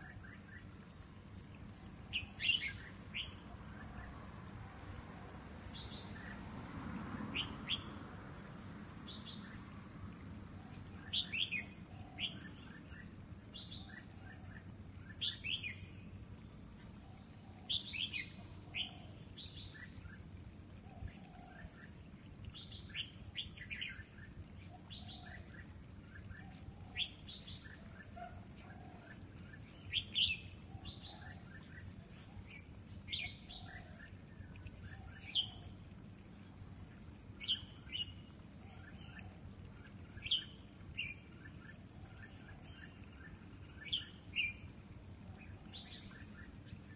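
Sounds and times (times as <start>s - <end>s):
birds chirping: 10.9s - 16.0s.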